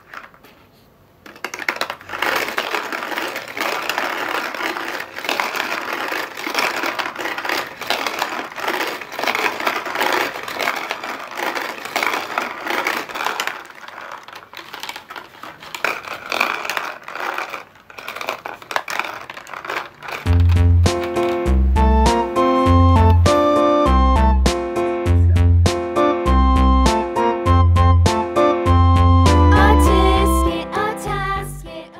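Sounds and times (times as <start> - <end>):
balls clattering on cardboard: 0.0 - 23.6
plastic balls rattling in drum: 0.0 - 23.9.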